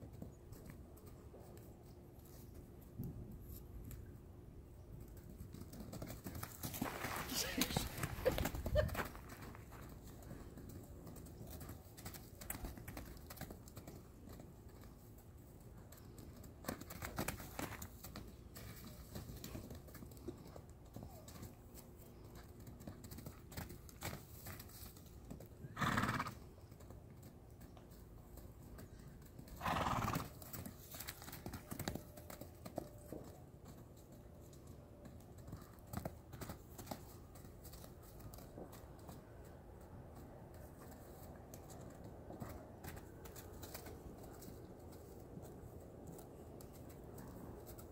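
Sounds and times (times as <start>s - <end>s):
hooves moving on grass: 4.8s - 47.9s
horse whinnying: 25.8s - 26.3s, 29.6s - 30.4s.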